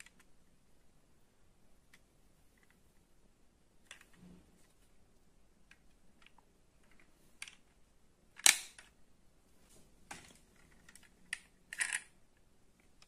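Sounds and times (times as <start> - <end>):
toy cars clicking on wooden table: 10.6 - 12.1.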